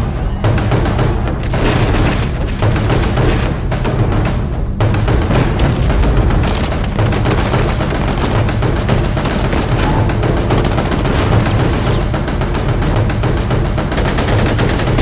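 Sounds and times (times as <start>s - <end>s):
battle soundtrack music: 0.0s - 15.0s
rapid gunfire: 0.9s - 4.1s, 4.8s - 15.0s
heavy explosion: 5.1s - 8.7s.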